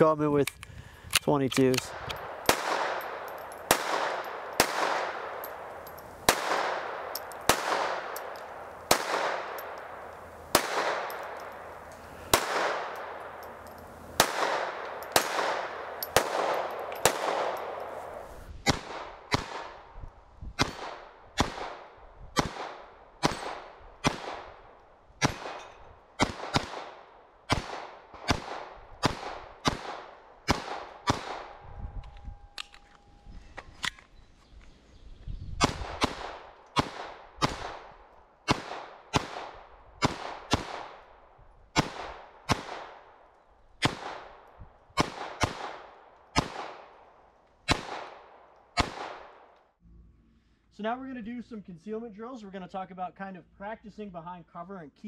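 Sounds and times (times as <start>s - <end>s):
pistol shots echoing: 1.6s - 19.9s, 20.6s - 31.6s, 35.6s - 41.2s, 41.8s - 43.2s, 43.8s - 44.4s, 45.0s - 49.5s.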